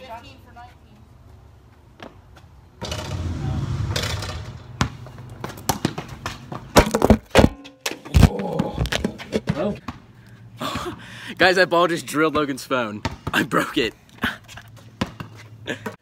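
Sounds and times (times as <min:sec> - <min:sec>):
rushing noise: 0:02.8 - 0:04.8.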